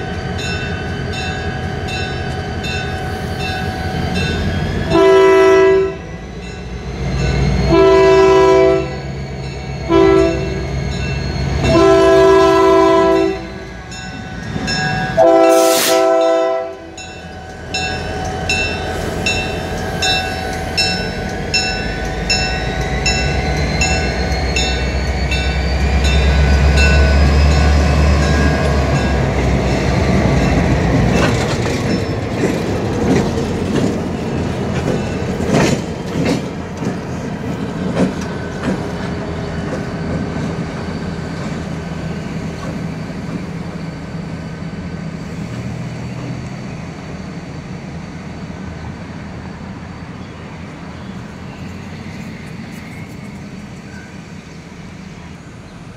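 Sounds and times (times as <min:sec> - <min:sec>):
locomotive bell ringing: 0:00.0 - 0:36.3
diesel locomotive engines: 0:00.0 - 0:55.9
train wheels clacking: 0:17.0 - 0:44.0.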